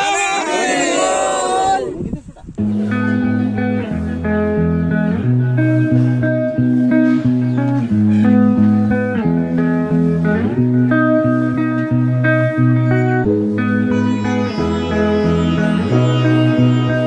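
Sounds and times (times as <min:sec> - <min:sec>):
low bass line: 0:02.6 - 0:17.0
plucked string melody: 0:02.6 - 0:17.0.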